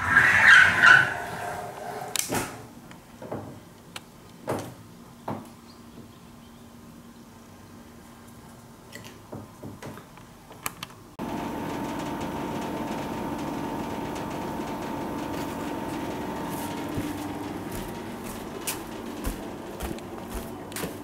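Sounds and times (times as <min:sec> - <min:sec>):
mechanical hum with drone: 0:10.8 - 0:21.0.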